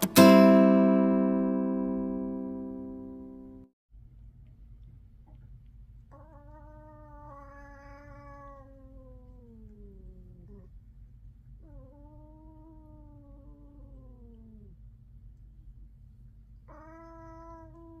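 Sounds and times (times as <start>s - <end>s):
cat yowling: 6.1s - 10.7s, 11.6s - 14.8s, 16.7s - 18.0s.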